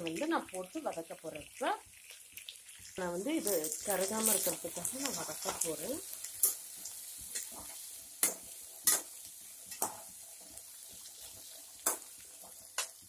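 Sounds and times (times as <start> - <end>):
onions sizzling in oil: 0.0 - 13.0
spoon clicking against pan: 9.7 - 10.0.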